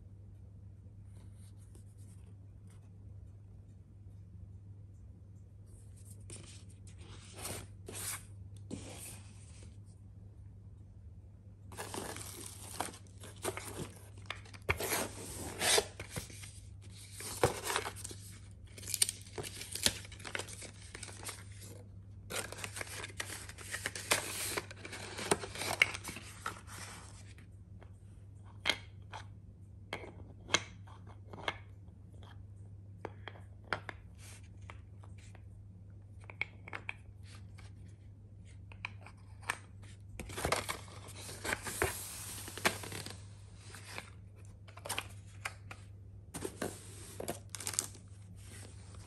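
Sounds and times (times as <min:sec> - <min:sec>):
tissue paper rustling: 0:46.4 - 0:49.0.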